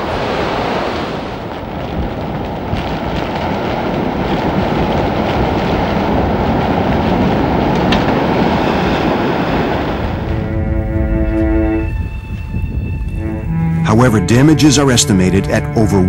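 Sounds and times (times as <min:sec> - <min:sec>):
surf breaking: 0:00.0 - 0:12.1
strong wind: 0:00.0 - 0:16.0.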